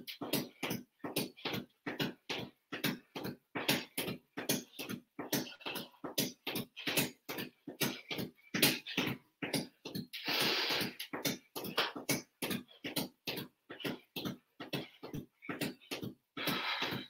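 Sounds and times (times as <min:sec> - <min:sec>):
man breathing hard: 0:10.1 - 0:12.0, 0:13.8 - 0:17.0.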